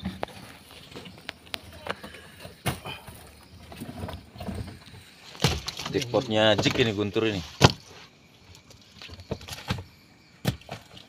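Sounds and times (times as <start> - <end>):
sharp knocks and thuds: 2.4 - 8.0, 9.0 - 11.0.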